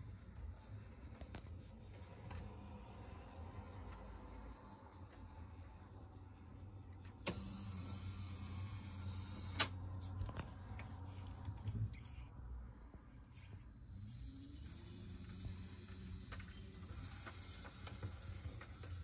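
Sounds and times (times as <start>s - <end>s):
turntable motor humming: 13.1s - 19.0s.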